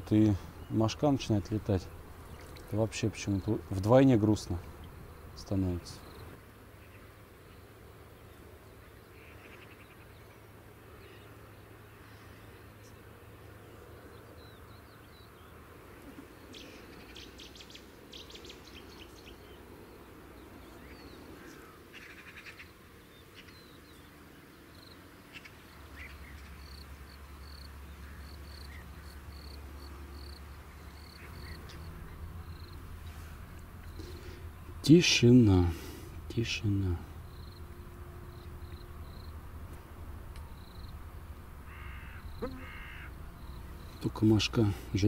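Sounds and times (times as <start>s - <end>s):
birds chirping: 0.0s - 45.0s
insects buzzing: 0.0s - 45.0s
low steady hum: 22.8s - 45.0s.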